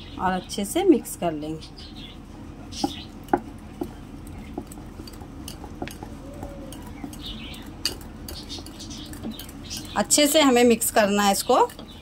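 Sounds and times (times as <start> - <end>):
whisk stirring batter: 3.3 - 6.9.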